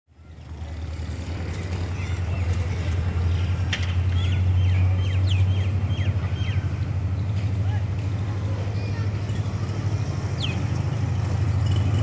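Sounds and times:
small birds chirping: 1.6 - 7.4, 8.2 - 11.2.

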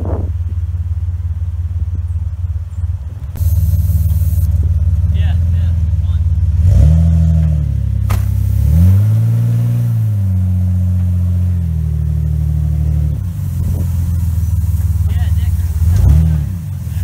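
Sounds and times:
engine revving: 3.3 - 17.0
sharp knock: 8.1 - 8.4.

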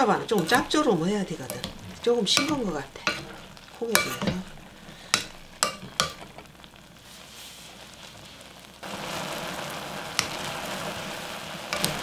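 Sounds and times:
wooden spoon knocking pot: 0.0 - 6.4
glaze bubbling and crackling: 0.0 - 12.0.

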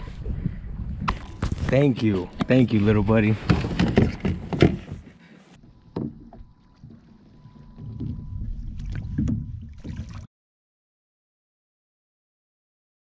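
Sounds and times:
wind rumbling on microphone: 0.0 - 4.8, 7.4 - 10.2.

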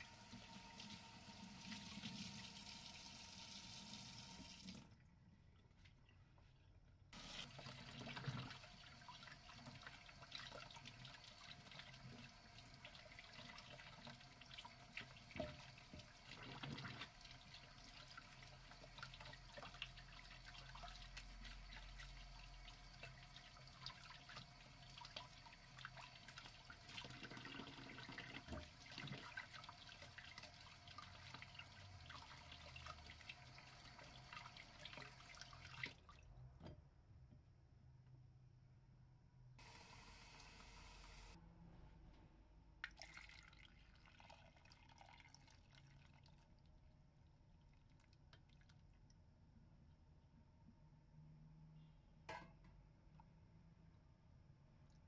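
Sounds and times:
water splashing in a bowl: 42.8 - 46.7.

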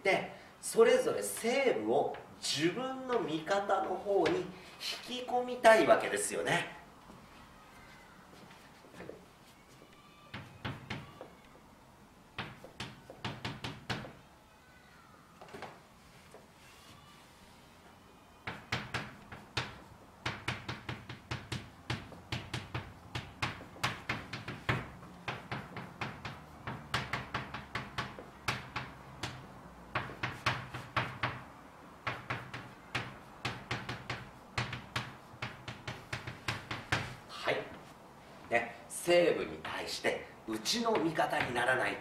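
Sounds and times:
chalk writing on a blackboard: 12.4 - 14.2, 18.5 - 31.4, 32.0 - 37.3.

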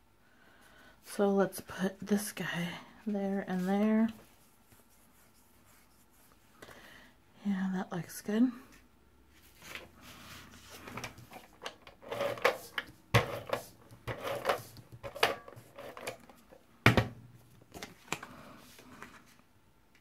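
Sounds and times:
paper rustling and scraping: 9.4 - 16.2.

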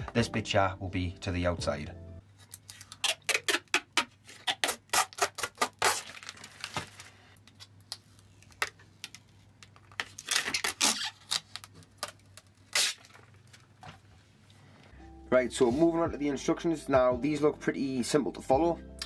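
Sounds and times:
plastic film being peeled: 2.4 - 9.2, 9.9 - 13.8.

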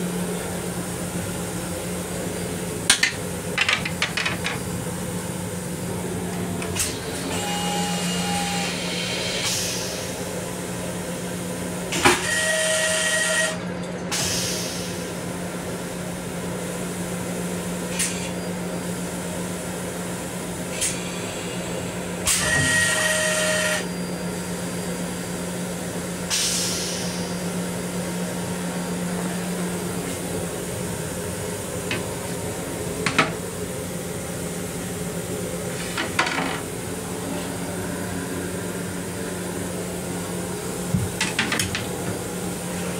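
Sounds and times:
vacuum toilet flushing: 22.2 - 24.0.

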